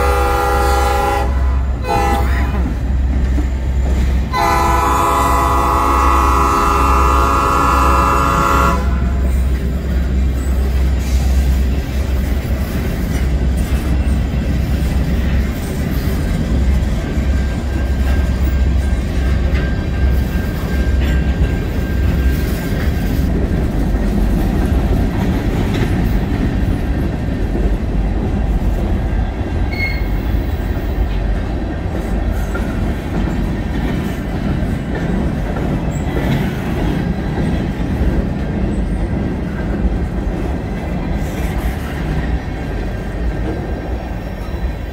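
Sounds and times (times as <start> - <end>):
steel wheels rumbling on rails: 0.0 - 44.9
faint wheel squeals: 29.7 - 30.3.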